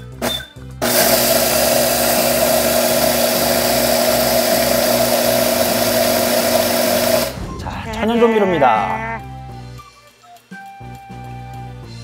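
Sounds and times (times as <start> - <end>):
blender grinding: 0.8 - 7.4.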